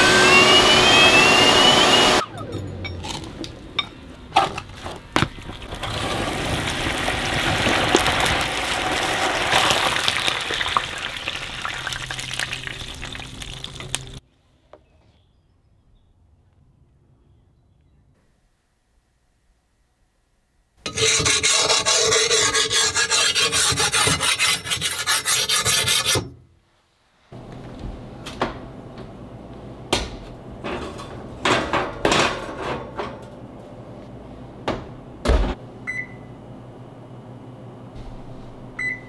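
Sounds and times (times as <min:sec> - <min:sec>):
file scraping steel blade: 0:20.8 - 0:26.3
oven door thump: 0:34.6 - 0:35.6.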